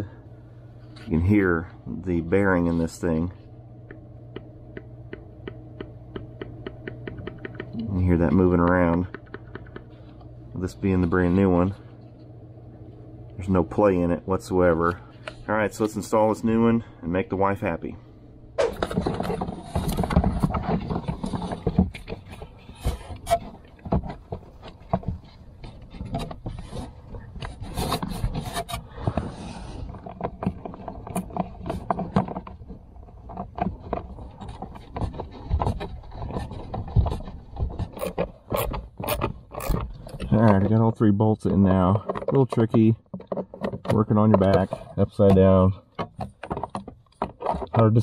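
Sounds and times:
plastic scraping and rubbing: 18.6s - 48.0s.

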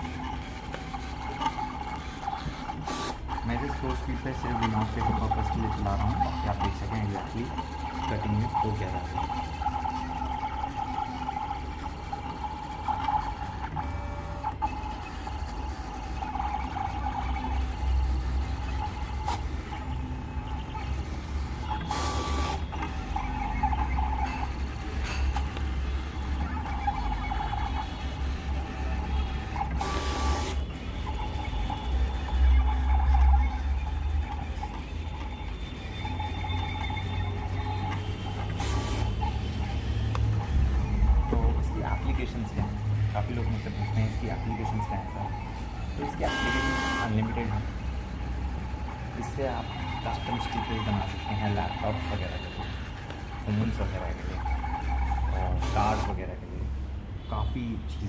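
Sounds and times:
cutting plotter motors whining: 0.0s - 56.4s.

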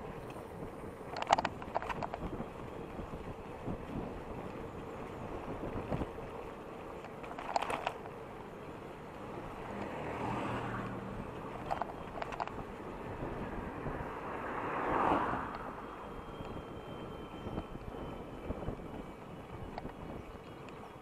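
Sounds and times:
wind on microphone: 0.0s - 6.4s, 9.4s - 20.9s
road noise: 0.0s - 21.0s
motor vehicle passing: 8.3s - 16.7s.

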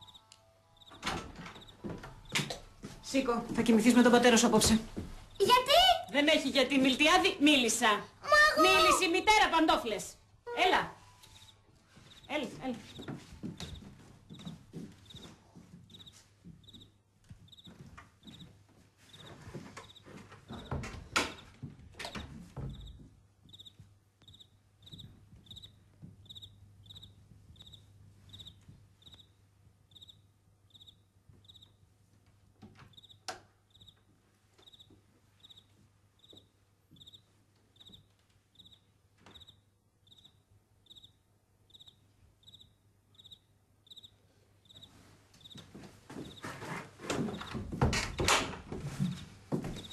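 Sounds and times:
faint cricket chirping: 0.0s - 2.5s, 15.9s - 16.9s, 17.5s - 17.7s, 23.5s - 31.8s, 32.9s - 34.0s, 34.6s - 37.2s, 37.8s - 45.6s.

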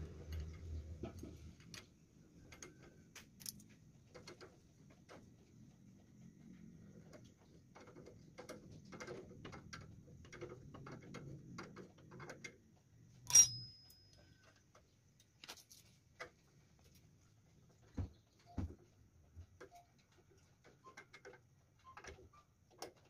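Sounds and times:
metal clicks of hand tools: 13.2s - 14.2s
sharp ringing metal clank: 13.3s - 14.2s.

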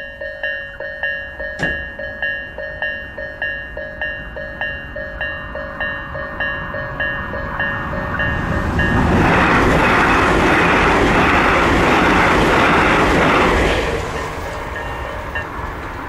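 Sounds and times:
level crossing bell dinging: 0.0s - 9.0s, 14.7s - 15.5s
electric train passing: 0.0s - 16.0s.

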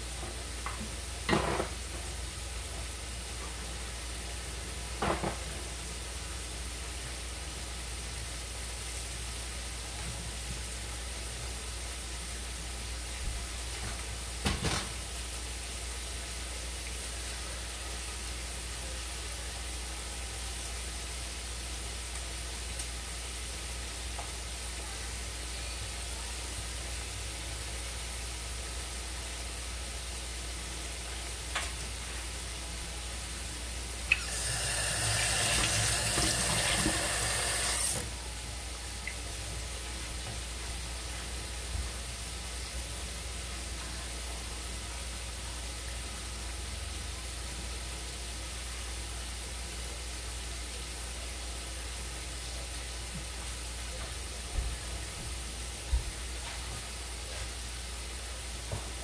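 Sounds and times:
water running into a sink: 34.1s - 38.2s.

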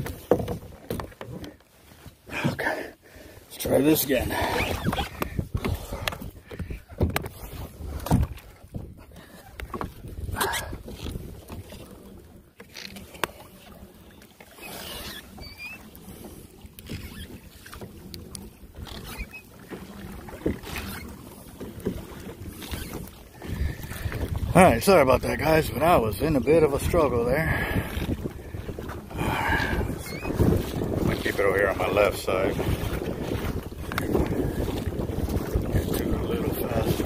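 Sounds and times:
water noise: 0.0s - 37.0s
fishing line hauled in by hand: 4.0s - 24.6s
knocks from handling gear on kayak: 4.7s - 7.3s
short high squeaks: 14.5s - 15.9s, 18.9s - 19.5s, 30.0s - 30.4s.

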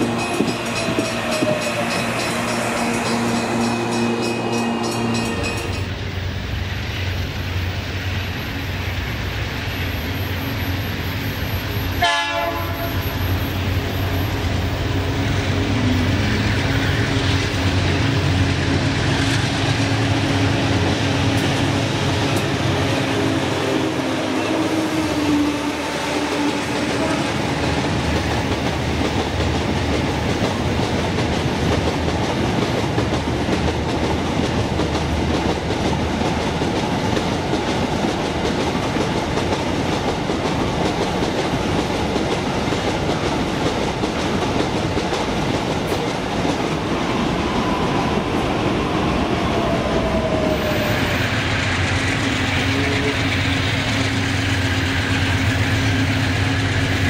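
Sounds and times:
diesel locomotive engine hum: 0.0s - 57.0s
freight train wheels rushing on rails: 0.0s - 57.0s.

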